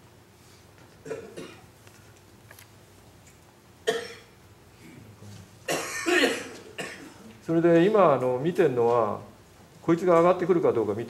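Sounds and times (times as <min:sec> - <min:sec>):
person coughing: 0:01.0 - 0:01.7, 0:03.8 - 0:05.1, 0:05.7 - 0:07.3.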